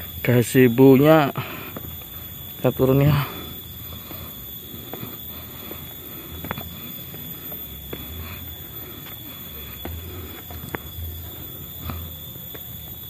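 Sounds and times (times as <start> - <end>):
high-pitched tone: 0.0 - 13.0
footsteps on wet concrete: 3.8 - 12.0.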